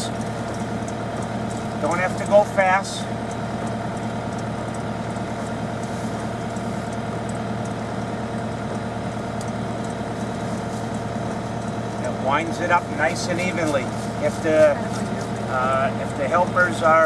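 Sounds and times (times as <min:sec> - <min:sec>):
diesel engine running low: 0:00.0 - 0:17.0.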